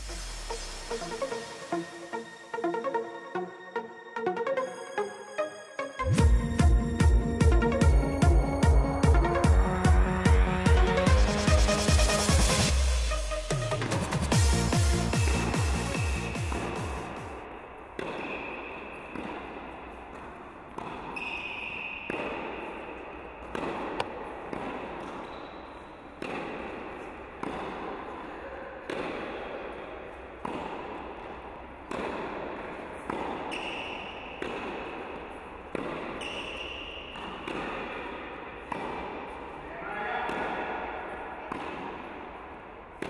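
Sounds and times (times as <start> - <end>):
electronic music: 0.0 - 17.4
tennis ball hit by racquet: 15.1 - 43.0.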